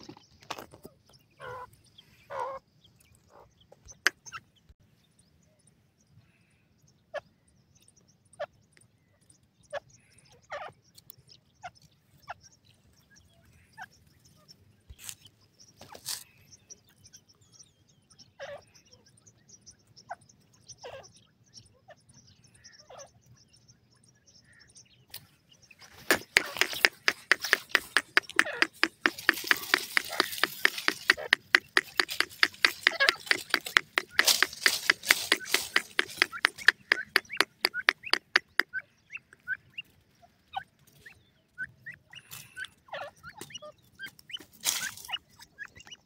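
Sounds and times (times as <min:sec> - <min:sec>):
bird clucking: 0:25.8 - 0:39.9
faint clicks: 0:26.1 - 0:38.6.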